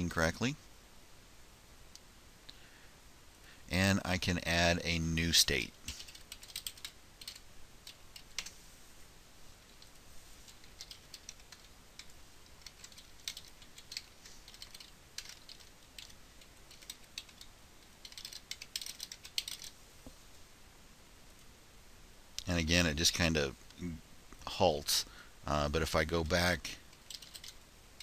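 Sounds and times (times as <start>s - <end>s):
typing on keyboard: 5.9s - 8.5s, 10.5s - 19.7s, 26.9s - 27.6s.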